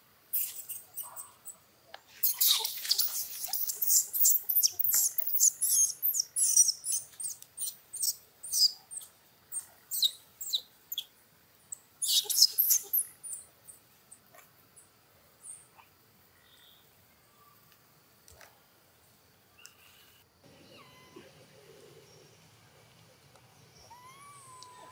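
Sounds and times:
young monkey screaming: 0:02.2 - 0:05.9, 0:20.7 - 0:21.2, 0:23.8 - 0:24.9.

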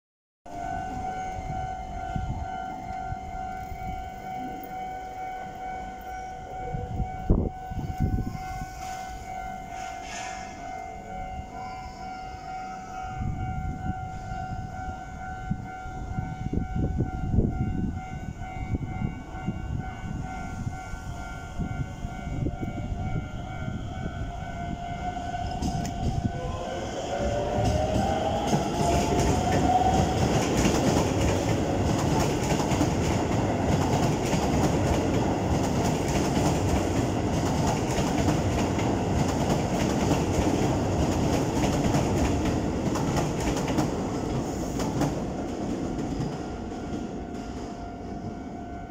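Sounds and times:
train electric motors whining: 0:00.5 - 0:18.8, 0:19.4 - 0:48.9
level crossing alarm tone: 0:00.5 - 0:35.9.

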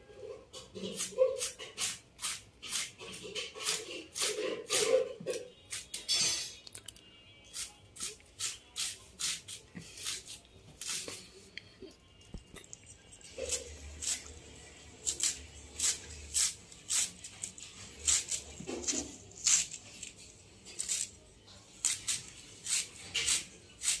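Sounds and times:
knife slicing cabbage: 0:00.8 - 0:05.9, 0:07.5 - 0:11.2, 0:13.2 - 0:14.3, 0:15.0 - 0:20.2, 0:20.8 - 0:21.2, 0:21.8 - 0:24.0.

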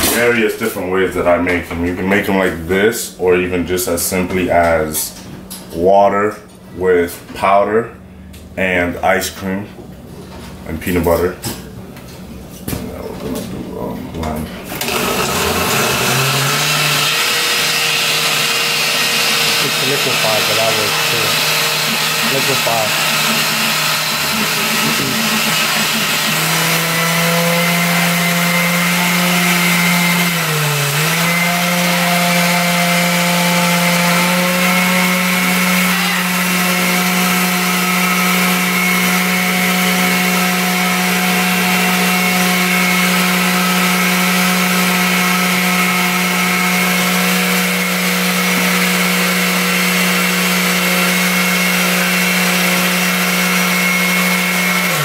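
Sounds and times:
blender motor running: 0:14.7 - 0:55.0.

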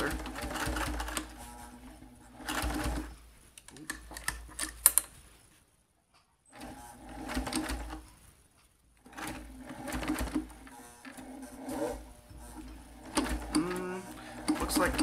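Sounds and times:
sewing machine stitching leather: 0:00.0 - 0:03.2, 0:06.5 - 0:08.2, 0:09.0 - 0:15.0.

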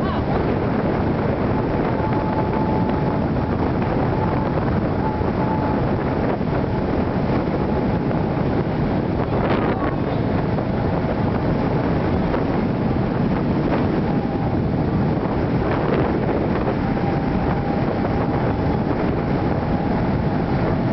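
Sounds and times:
wind buffeting microphone: 0:00.0 - 0:20.9
faint whistle of air: 0:01.6 - 0:06.8, 0:15.4 - 0:20.9.

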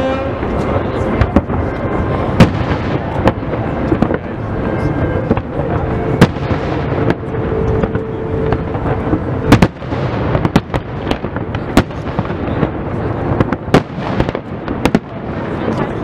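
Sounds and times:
steady low tone: 0:00.0 - 0:13.7
low rumble of explosions: 0:00.0 - 0:16.0.

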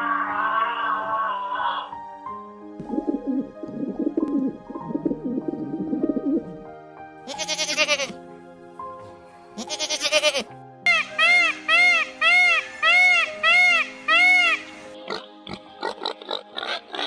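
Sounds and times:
background music: 0:00.0 - 0:17.0
goat bleating: 0:07.3 - 0:08.2, 0:09.6 - 0:10.5.

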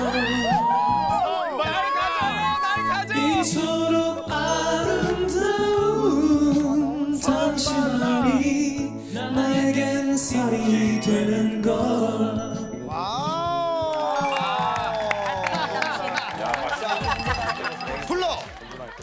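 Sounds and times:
man singing into microphone: 0:03.1 - 0:12.4.

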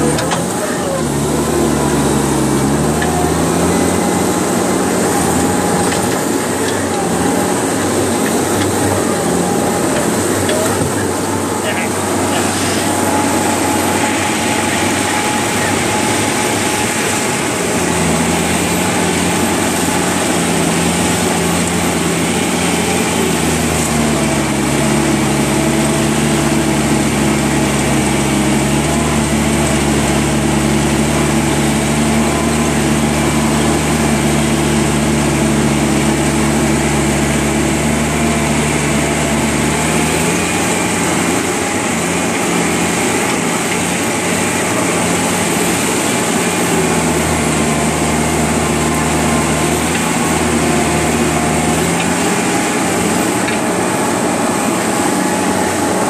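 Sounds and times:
construction equipment engine running: 0:00.0 - 0:56.0.

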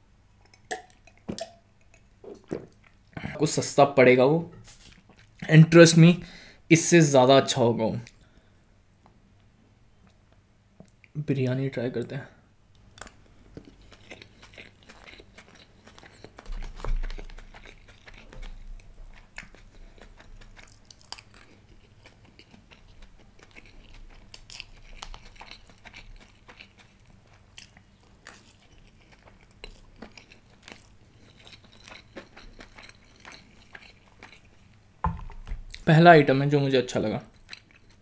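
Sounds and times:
chewing and wet mouth clicks: 0:13.0 - 0:34.8, 0:37.3 - 0:38.0
low thump: 0:35.0 - 0:35.7.

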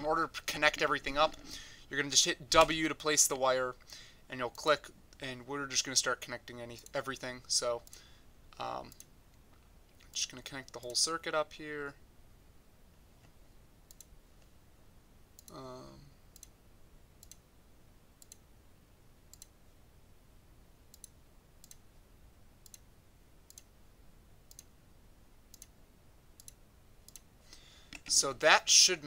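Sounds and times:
computer mouse clicking: 0:13.9 - 0:14.1, 0:16.3 - 0:16.6, 0:17.2 - 0:17.4, 0:18.2 - 0:18.5, 0:19.3 - 0:19.6, 0:20.9 - 0:21.8, 0:22.6 - 0:22.8, 0:23.5 - 0:23.7, 0:24.5 - 0:24.7, 0:25.5 - 0:25.8, 0:26.4 - 0:27.3.

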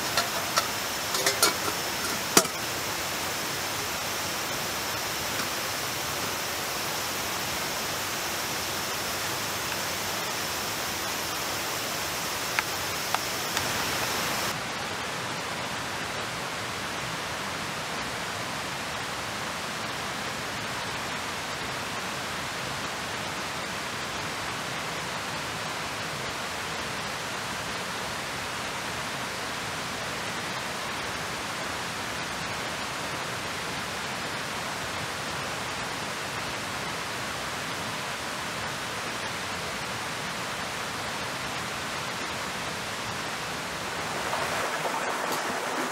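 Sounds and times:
rushing water hiss: 0:00.0 - 0:45.9.

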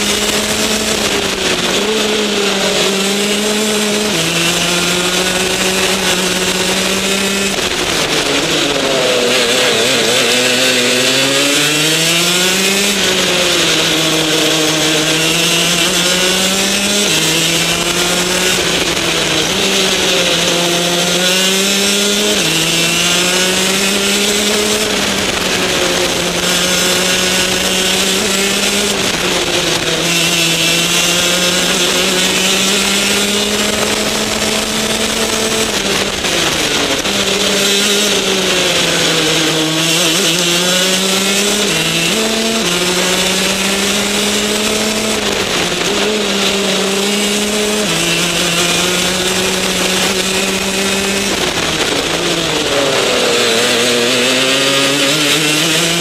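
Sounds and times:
kart engine at racing speed: 0:00.0 - 0:56.0.

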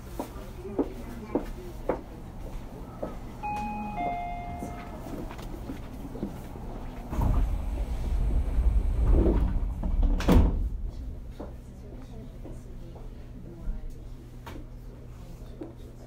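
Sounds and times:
train running rumble: 0:00.0 - 0:13.8
train car low hum: 0:00.0 - 0:15.8
two-note electronic chime: 0:03.4 - 0:05.2.

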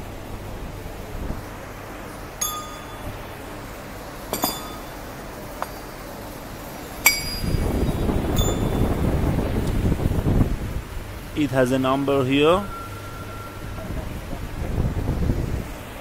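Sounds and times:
steel rollers clinking: 0:02.0 - 0:09.1, 0:11.2 - 0:14.6.

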